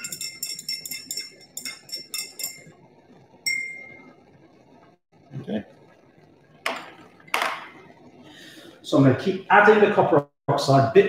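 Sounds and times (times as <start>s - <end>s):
glass rod clinking in beaker: 0.0s - 2.8s, 3.5s - 4.1s.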